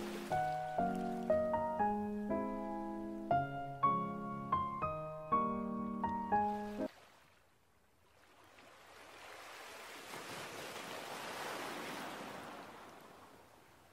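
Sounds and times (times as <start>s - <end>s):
waves breaking on beach: 0.0s - 1.2s, 8.0s - 13.9s.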